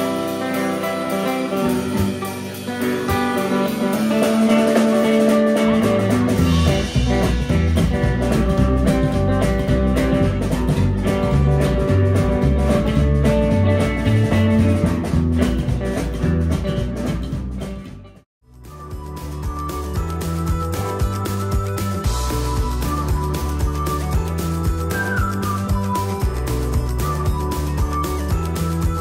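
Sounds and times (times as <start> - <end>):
music with guitar and bass beat: 0.0 - 29.0.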